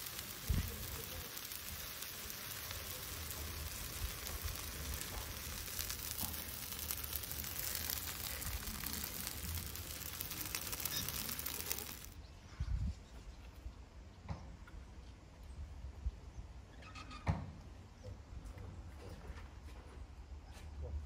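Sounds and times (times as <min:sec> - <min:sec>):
hoof burning sizzle and crackling: 0:00.0 - 0:12.2.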